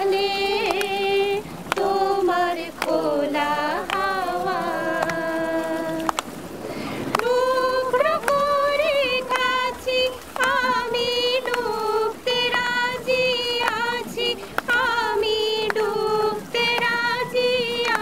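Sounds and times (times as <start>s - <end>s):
woman singing in high voice: 0.0s - 6.2s, 7.1s - 18.0s
hand claps: 0.6s - 1.0s, 1.7s - 5.2s, 6.0s - 6.3s, 7.1s - 7.4s, 8.2s - 8.5s, 10.4s - 11.7s, 13.6s - 14.0s, 14.6s - 15.9s, 16.6s - 17.2s, 17.8s - 18.0s.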